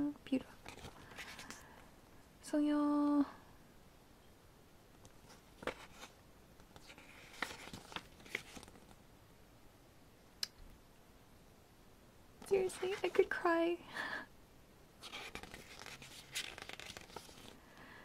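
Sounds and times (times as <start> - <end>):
page turning rustle: 0.5 - 1.6, 5.0 - 9.0, 12.5 - 13.4, 15.0 - 17.6.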